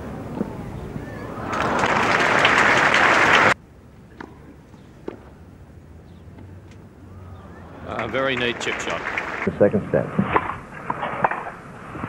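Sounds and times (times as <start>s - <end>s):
crowd applauding: 0.5s - 3.6s, 7.2s - 9.5s.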